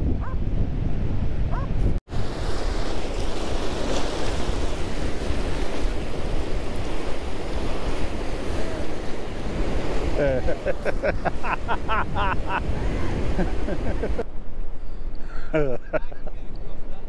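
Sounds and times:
wind buffeting microphone: 0.0 - 14.8
water rushing around rocks: 2.1 - 14.2.

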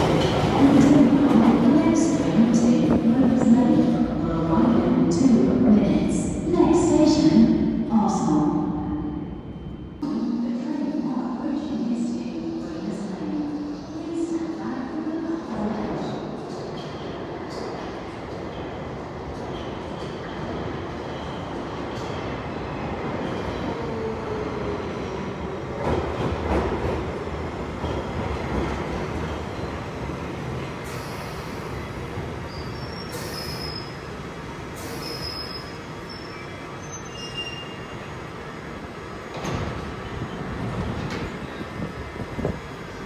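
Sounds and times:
train rumbling: 0.0 - 33.3, 38.4 - 43.0
high-pitched brake squeals: 32.5 - 34.0, 34.8 - 38.0.

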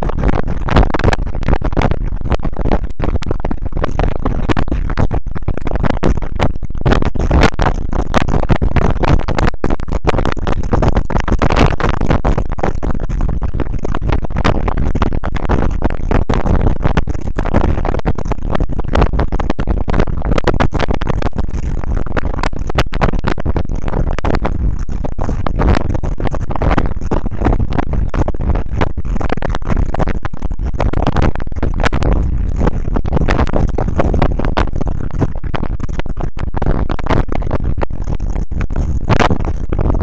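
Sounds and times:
dense crackling: 0.0 - 40.0.

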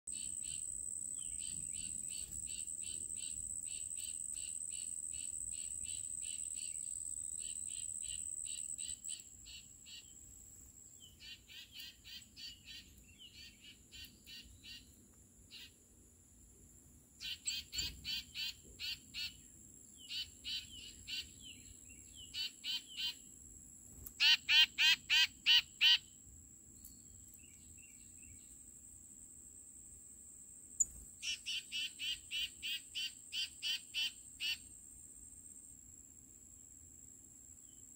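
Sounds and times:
high-pitched insect drone: 0.1 - 10.2
songbirds whistling: 17.2 - 19.4, 30.8 - 34.6.

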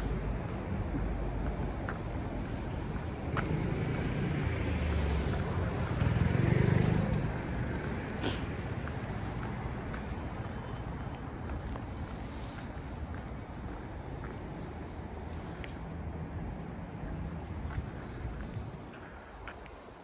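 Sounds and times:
low street rumble: 0.0 - 20.0.

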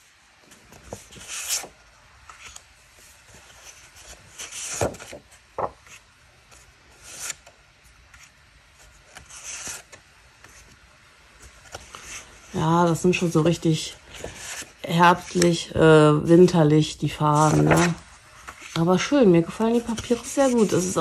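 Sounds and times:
paper sheets swishing: 0.4 - 7.5, 17.2 - 21.0.

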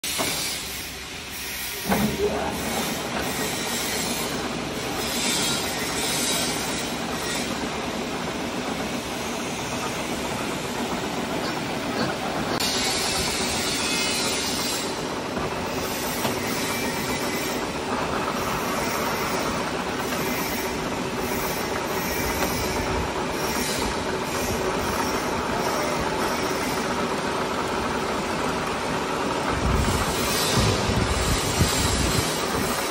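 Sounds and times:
boring machine running: 0.0 - 32.9
metallic cutting hiss and squeal: 0.2 - 1.9, 5.0 - 7.6, 12.6 - 15.0.

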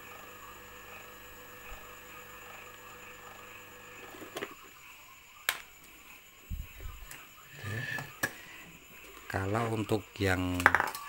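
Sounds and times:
spin-dryer motor humming: 0.0 - 4.8, 6.5 - 9.9.

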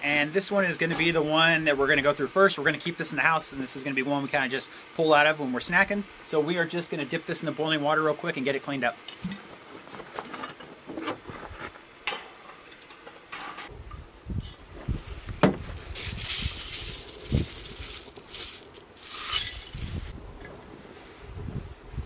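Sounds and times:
wind rumbling on microphone: 13.7 - 22.0.

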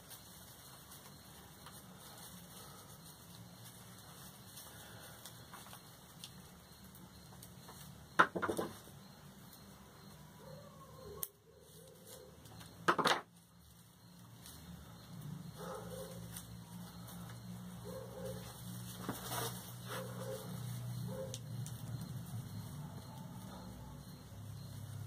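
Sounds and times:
dog barking: 15.6 - 16.3, 17.8 - 18.6, 19.9 - 21.4, 22.8 - 24.1.

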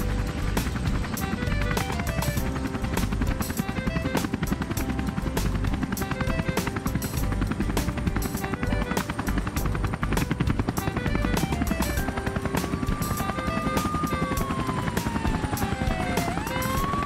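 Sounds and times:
background music: 0.0 - 17.0
helicopter rotor chopping: 0.0 - 17.0
siren wailing: 11.0 - 17.0.

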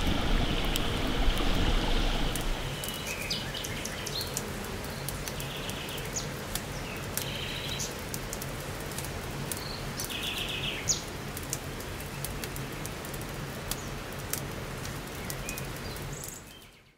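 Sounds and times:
birds chirping: 0.0 - 7.9
campfire crackling: 0.0 - 10.4.

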